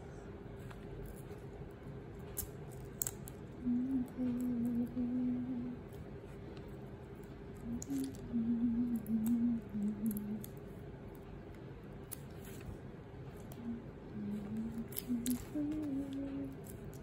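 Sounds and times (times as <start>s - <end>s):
person humming: 3.6s - 5.9s, 7.6s - 10.6s, 13.5s - 17.0s.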